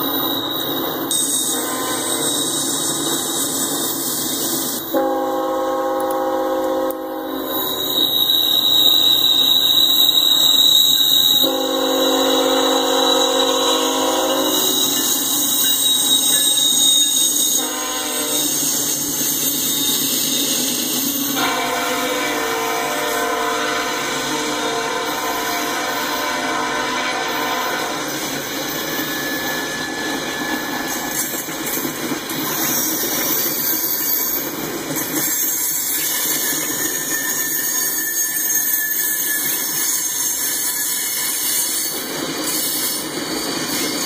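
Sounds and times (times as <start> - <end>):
rumble of passing train: 0.0 - 44.0
locomotive air horn blasts: 1.5 - 2.3, 4.9 - 7.9, 11.4 - 14.9, 17.4 - 18.6, 21.4 - 28.1.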